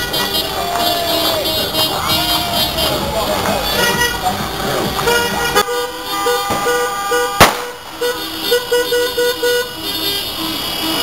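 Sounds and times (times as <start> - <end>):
car horns honking: 0.0 - 11.0
sharp bang: 7.4 - 7.8.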